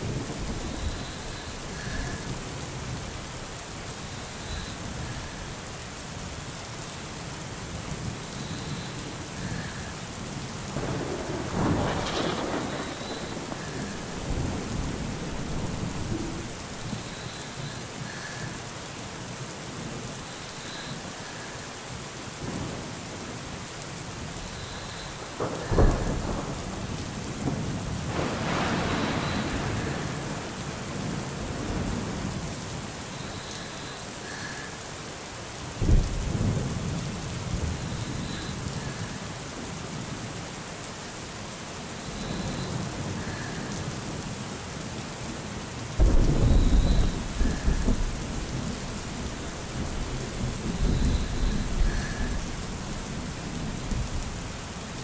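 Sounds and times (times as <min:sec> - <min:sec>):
steady rain: 0:00.0 - 0:55.0
rolling thunder: 0:10.7 - 0:17.0, 0:25.2 - 0:32.5, 0:46.0 - 0:54.4
loud thunder clap: 0:11.3 - 0:13.5.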